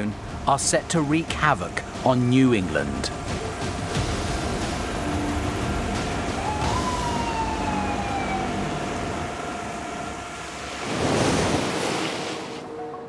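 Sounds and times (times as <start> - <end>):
siren rising and falling: 6.0 - 10.9.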